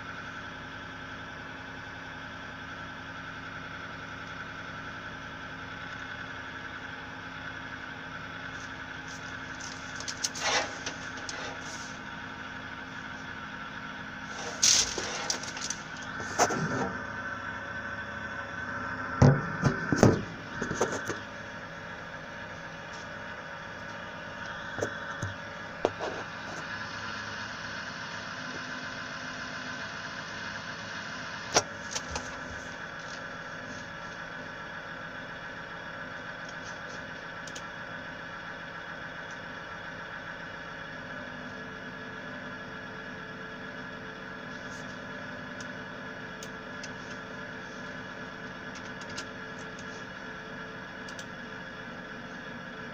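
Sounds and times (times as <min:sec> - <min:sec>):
power supply fan hum: 0:08.4 - 0:13.4, 0:14.2 - 0:26.6
loud knocks: 0:19.2 - 0:20.3.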